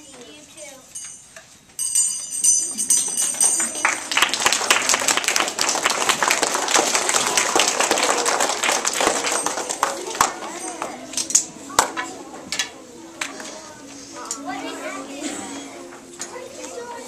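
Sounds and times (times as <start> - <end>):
audience applauding: 3.3 - 10.9.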